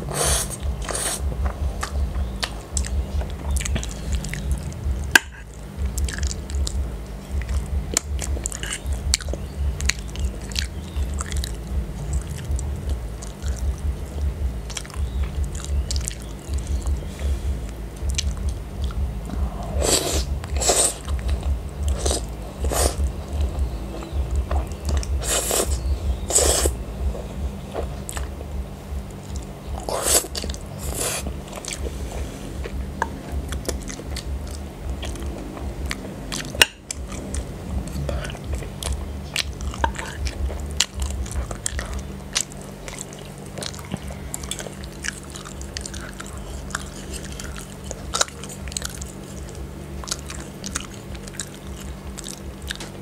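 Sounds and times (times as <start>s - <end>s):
chewing food: 0.0s - 53.0s
noodles slurped: 25.2s - 26.8s, 29.8s - 32.8s
wet mouth clicks: 32.6s - 53.0s.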